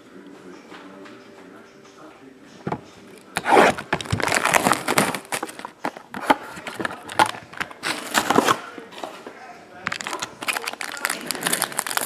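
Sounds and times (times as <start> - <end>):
plastic shrink wrap crinkling: 3.4 - 8.6, 9.8 - 12.0.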